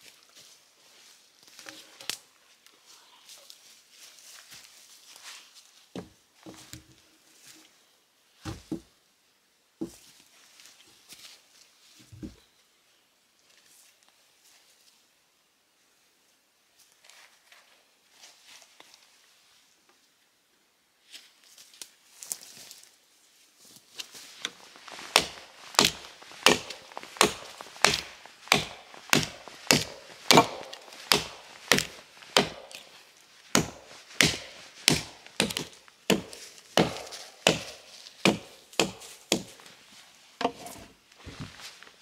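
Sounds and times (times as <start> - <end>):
axe chopping wood: 25.0 - 32.9, 33.5 - 39.5.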